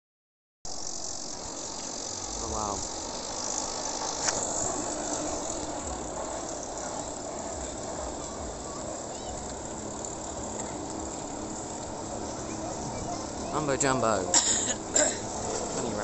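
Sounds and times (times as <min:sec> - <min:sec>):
outdoor background hiss: 0:00.7 - 0:16.0.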